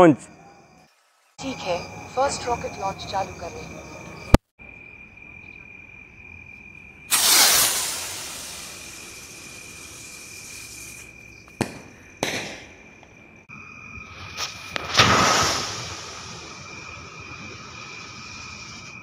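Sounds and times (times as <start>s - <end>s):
crickets singing: 0.0s - 19.0s
firework rocket hissing: 7.1s - 12.6s, 14.1s - 19.0s
firework bursting cracks: 7.1s - 12.8s, 14.2s - 17.8s.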